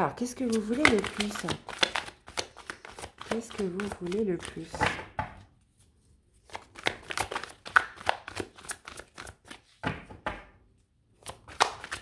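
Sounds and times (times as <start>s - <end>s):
cards shuffled by hand: 0.4s - 4.9s, 6.4s - 9.8s, 11.2s - 12.0s.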